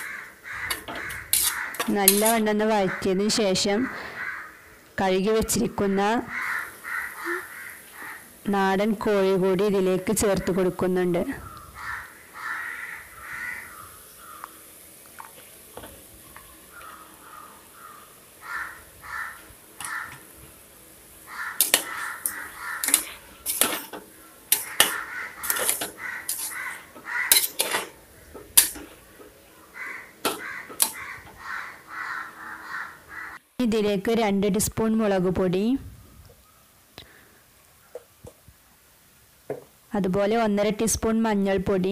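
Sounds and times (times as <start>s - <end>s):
crows cawing: 0.0s - 3.2s, 3.8s - 4.9s, 6.2s - 8.4s, 11.3s - 14.9s, 16.5s - 20.4s, 21.2s - 33.4s
spoon scraping metal pot: 0.7s - 2.5s, 21.5s - 29.3s, 30.2s - 31.0s.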